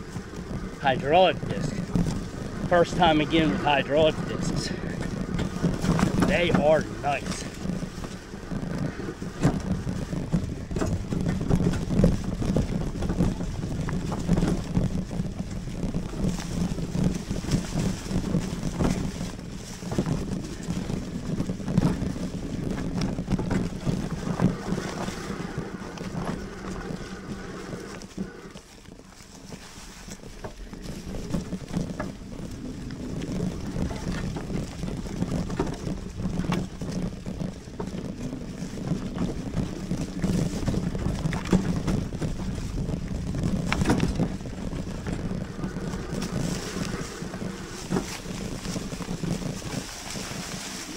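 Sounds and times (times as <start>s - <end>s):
bike tyre noise on trail: 0.0s - 50.9s
rattling over rough ground: 0.0s - 50.9s
wind buffeting microphone: 0.0s - 50.9s.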